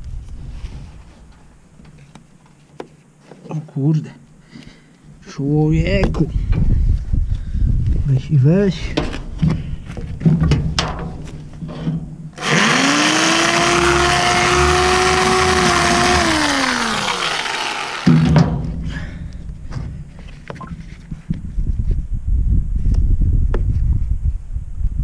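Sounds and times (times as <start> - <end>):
hissing cutting noise: 12.4 - 18.3
power tool motor whining: 12.4 - 18.4.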